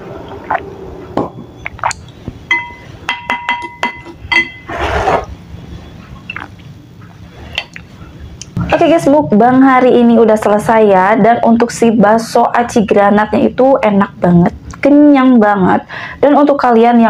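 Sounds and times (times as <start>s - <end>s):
bowl ringing notes: 2.5s - 4.7s
utensils knocking on ceramic bowl: 2.5s - 4.7s.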